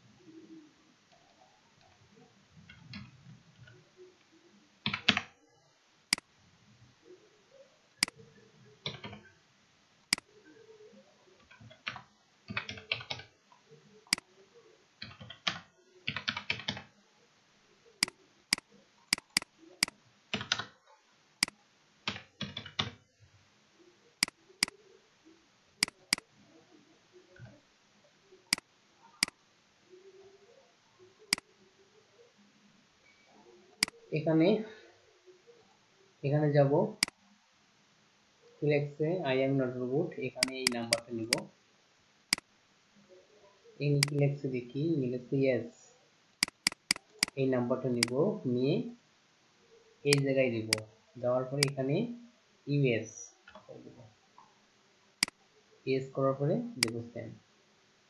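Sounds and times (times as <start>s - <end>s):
keyboard typing: 4.8s - 5.3s, 8.8s - 9.3s, 11.4s - 13.3s, 15.0s - 16.9s, 18.0s - 20.7s, 21.4s - 23.0s, 25.8s - 26.3s, 40.4s - 41.5s, 44.0s - 44.2s, 46.4s - 47.4s
mouse clicks: 18.0s - 20.6s, 25.8s - 26.2s, 40.4s - 41.5s, 44.0s - 44.2s, 46.4s - 47.4s, 50.1s - 50.9s, 56.8s - 57.0s.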